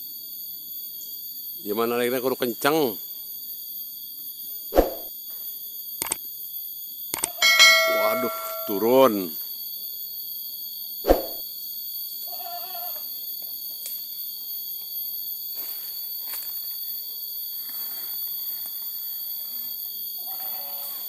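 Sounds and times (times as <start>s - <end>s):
steady high-pitched drone: 7.4s - 9.3s.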